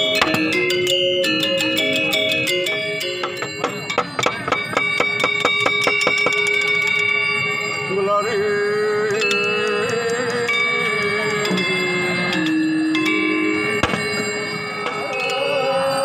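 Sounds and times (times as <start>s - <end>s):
metallophones struck with mallets: 0.0s - 7.9s, 9.2s - 16.0s
person singing: 7.9s - 16.0s.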